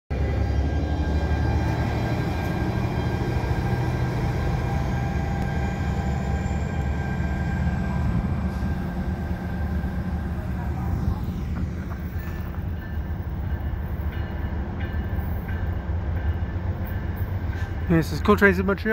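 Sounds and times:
diesel locomotive rumble: 0:00.1 - 0:18.9
faint high whine: 0:05.5 - 0:13.2.

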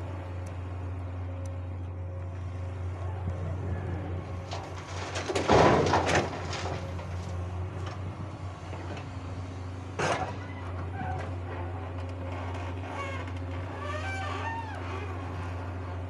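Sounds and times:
diesel engine droning: 0:00.0 - 0:16.0
soil pouring into steel truck bed: 0:04.6 - 0:07.2.

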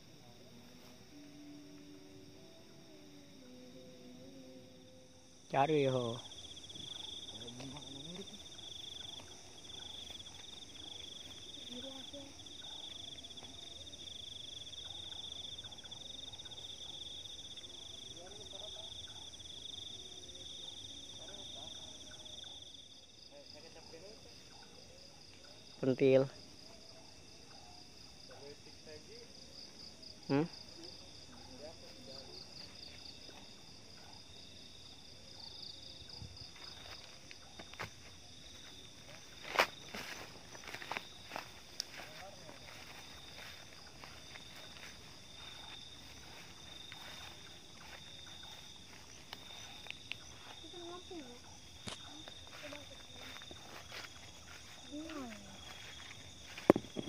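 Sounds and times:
night insects trilling: 0:00.0 - 0:57.0
footsteps rustling through grass: 0:36.4 - 0:57.0.

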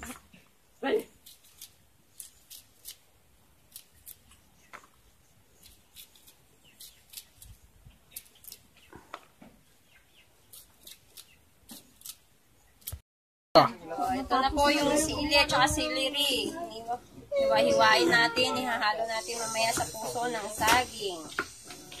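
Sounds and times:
knife snicking through plant: 0:10.5 - 0:12.2.

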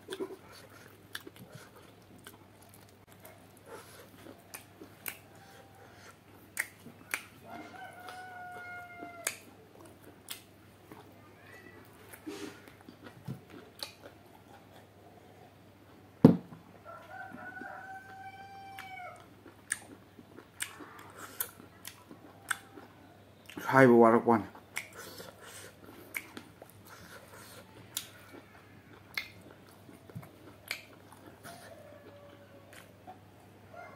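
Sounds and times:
eating clicks and smacks: 0:04.0 - 0:05.3, 0:06.3 - 0:07.4, 0:09.2 - 0:10.6, 0:12.8 - 0:14.2, 0:18.8 - 0:23.8, 0:24.5 - 0:31.4
rooster crowing: 0:05.2 - 0:06.1, 0:07.4 - 0:09.4, 0:16.8 - 0:19.3, 0:31.4 - 0:32.9, 0:33.7 - 0:33.9.

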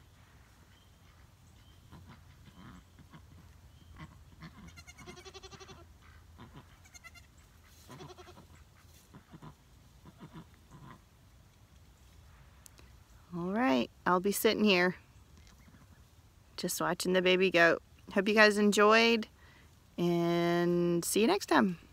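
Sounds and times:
goats bleating: 0:07.9 - 0:08.4.

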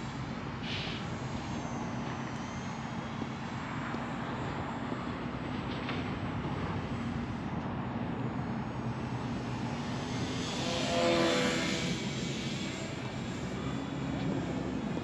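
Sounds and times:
model plane motor buzzing: 0:06.3 - 0:15.0.

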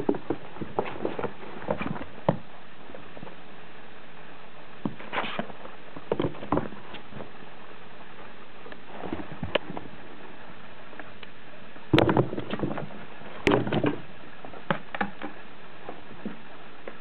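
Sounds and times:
kittens scratching cardboard: 0:00.0 - 0:02.4, 0:04.9 - 0:07.3
short rustle: 0:04.9 - 0:07.4.

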